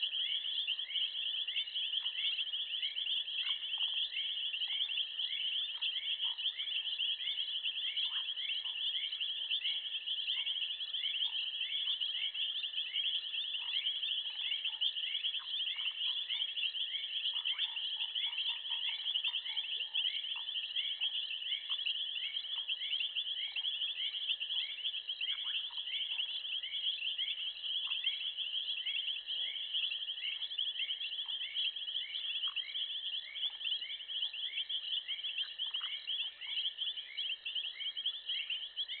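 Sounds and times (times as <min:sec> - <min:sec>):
faint short insect calls: 0:00.0 - 0:39.0
insect chirping call: 0:00.0 - 0:39.0.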